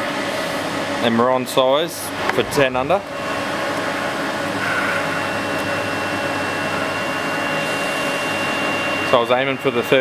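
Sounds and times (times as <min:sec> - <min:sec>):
grinder motors humming: 0:02.0 - 0:06.9
thin high whine: 0:02.0 - 0:09.8.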